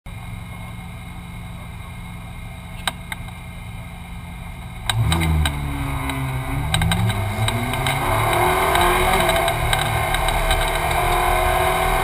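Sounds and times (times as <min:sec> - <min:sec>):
car engine idling and revving: 0:00.1 - 0:12.0
sharp clicks: 0:04.8 - 0:11.3.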